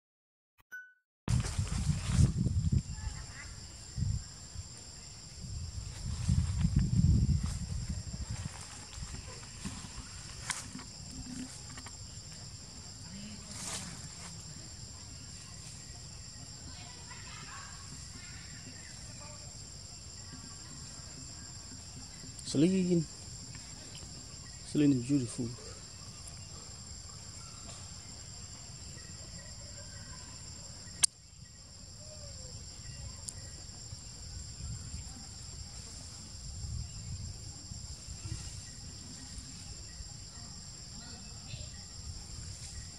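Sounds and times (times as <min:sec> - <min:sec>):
insect drone: 0:01.3 - 0:42.9.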